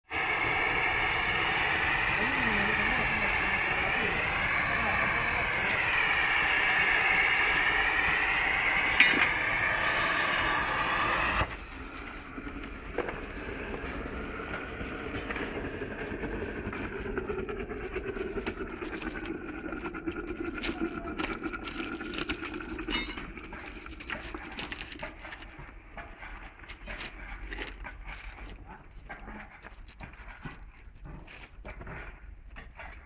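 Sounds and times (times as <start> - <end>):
gas burner rushing: 0.0 - 19.7
thermite flame burning: 0.1 - 24.6.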